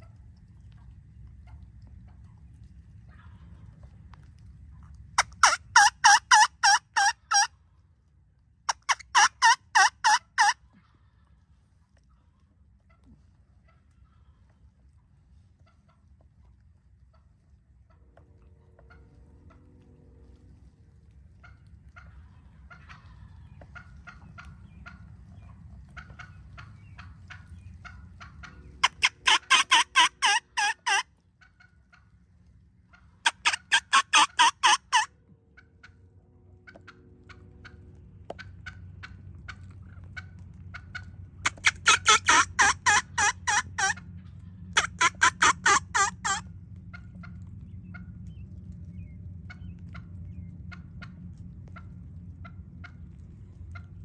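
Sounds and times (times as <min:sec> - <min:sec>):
soft turkey calls: 0:00.0 - 0:07.9, 0:08.7 - 0:54.0
turkey yelping: 0:04.8 - 0:07.6, 0:08.7 - 0:11.1, 0:21.3 - 0:32.1, 0:32.9 - 0:36.0, 0:36.6 - 0:48.1.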